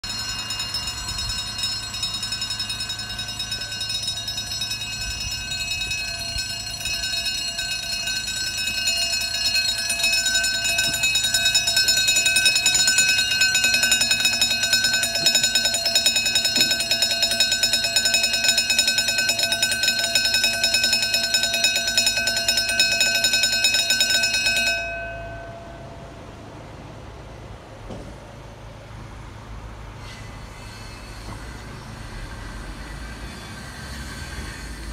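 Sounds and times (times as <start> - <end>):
level crossing alarm pulsing: 0.0 - 26.0.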